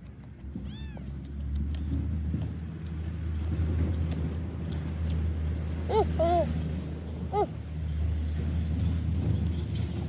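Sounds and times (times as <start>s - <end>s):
faint chewing clicks: 0.0s - 5.4s
vehicle engine rumbling: 0.0s - 10.0s.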